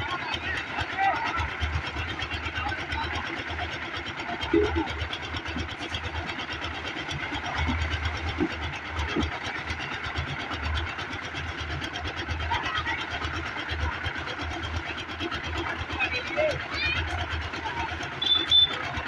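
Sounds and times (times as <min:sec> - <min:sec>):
concrete mixer engine running: 0:00.0 - 0:19.0.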